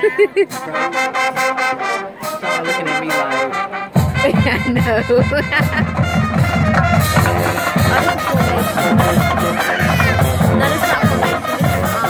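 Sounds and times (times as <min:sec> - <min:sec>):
horns holding chords: 0:00.0 - 0:12.0
drums and low brass beat: 0:00.4 - 0:12.0.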